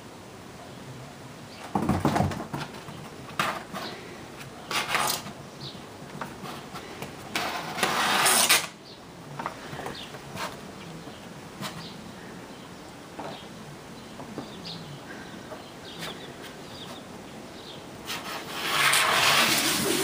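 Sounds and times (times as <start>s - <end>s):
kitten thumping on cardboard box: 1.6s - 3.7s
claws scratching cardboard: 2.6s - 5.4s, 6.2s - 8.7s, 18.0s - 20.0s.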